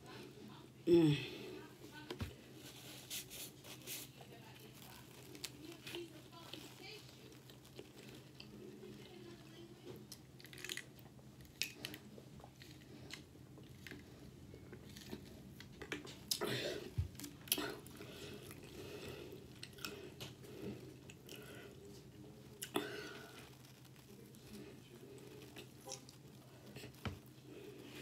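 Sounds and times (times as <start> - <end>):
faint steady hum: 0.0 - 28.0
chewing and swallowing: 5.1 - 9.1, 9.9 - 28.0.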